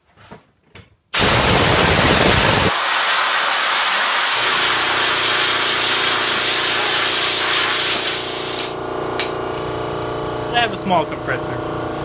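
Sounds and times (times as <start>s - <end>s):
compressed air hissing: 1.2s - 8.8s.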